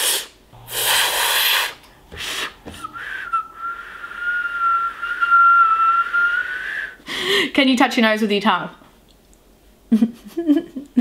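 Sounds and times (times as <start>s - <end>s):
breathy puffs of air: 0.0s - 5.3s
woman whistling steady note: 2.2s - 7.0s.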